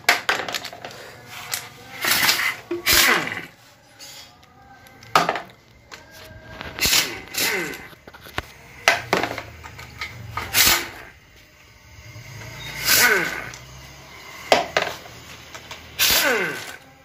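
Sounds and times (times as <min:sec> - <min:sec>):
impact wrench bursts: 0:00.1 - 0:03.6, 0:06.8 - 0:16.9
motor winding down whine: 0:06.3 - 0:17.0.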